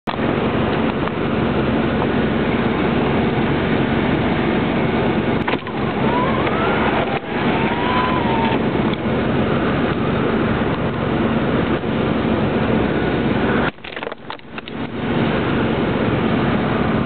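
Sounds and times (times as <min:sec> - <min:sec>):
car cabin rushing noise: 0:05.3 - 0:09.0.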